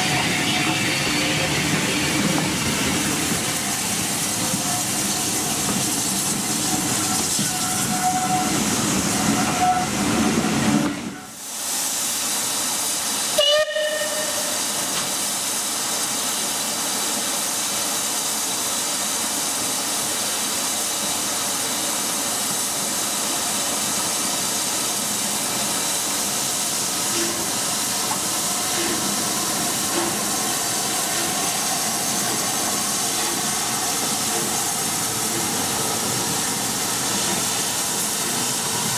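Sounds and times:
steam locomotive hissing steam: 0:00.0 - 0:38.9
steam whistle blast: 0:07.4 - 0:10.0, 0:13.4 - 0:14.8.

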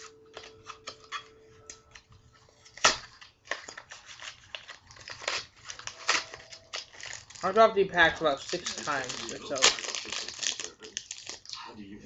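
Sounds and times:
foil pack crinkling: 0:02.3 - 0:11.5.

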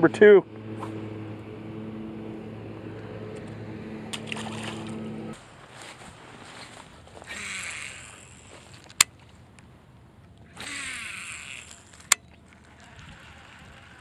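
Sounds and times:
fishing reel spool whirring: 0:00.0 - 0:05.4, 0:07.2 - 0:09.0, 0:10.4 - 0:14.0.

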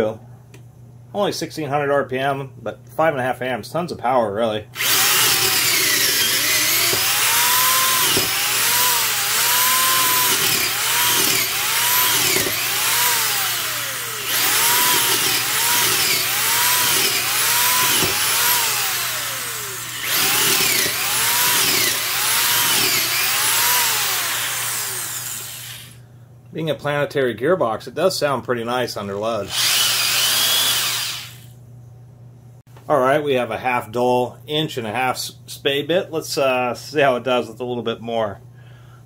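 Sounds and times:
drill bit rasping through wood: 0:04.8 - 0:26.0, 0:29.4 - 0:31.5
drill motor whining: 0:04.8 - 0:26.0, 0:29.4 - 0:31.5.

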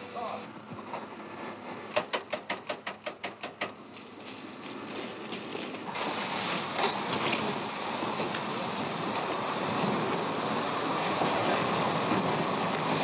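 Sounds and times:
steady rushing hiss: 0:05.8 - 0:13.0.

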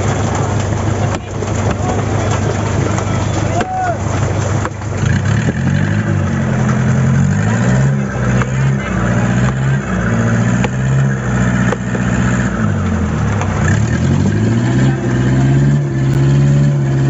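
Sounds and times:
boat engine running: 0:00.0 - 0:17.0
knife chopping ice blocks: 0:01.1 - 0:06.2.

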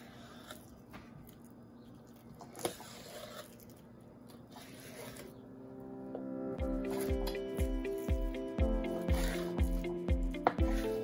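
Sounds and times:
knife cutting and scraping fish: 0:00.0 - 0:00.9, 0:02.4 - 0:05.4, 0:06.8 - 0:11.0.

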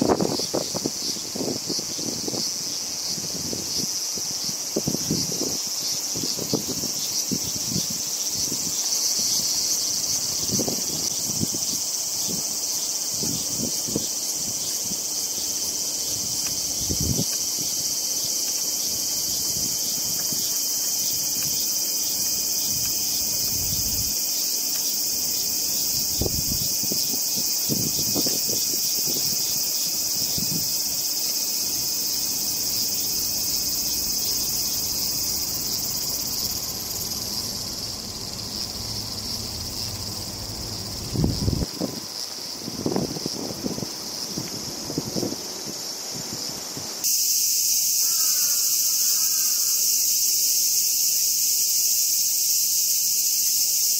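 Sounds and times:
cicadas droning: 0:00.0 - 0:53.9
low bumps and rumbles: 0:33.9 - 0:41.8.

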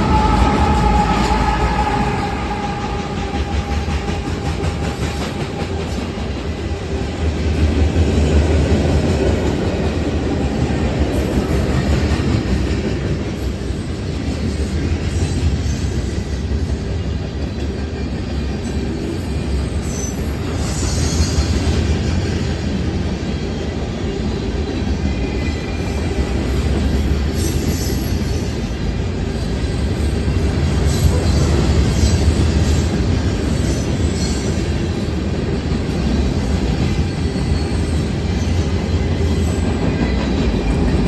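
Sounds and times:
diesel locomotive rumbling: 0:00.0 - 0:41.0
high wheel squeal: 0:36.9 - 0:40.1.

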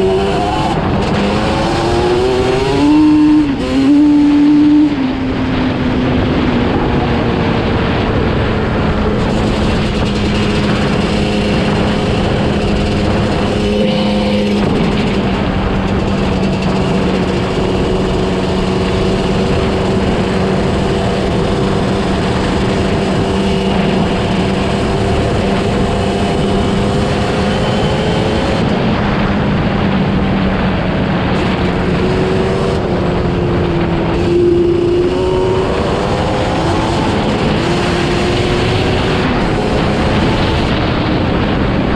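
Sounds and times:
wind noise on microphone: 0:00.0 - 0:41.9
two-stroke engine running: 0:08.9 - 0:30.4.

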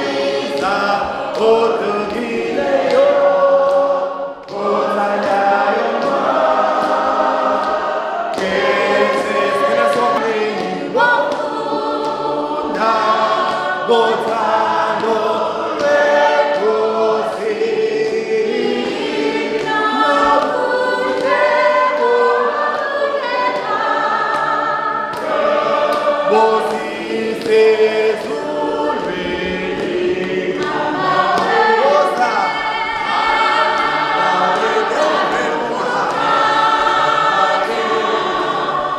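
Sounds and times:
congregation singing: 0:00.0 - 0:38.9.

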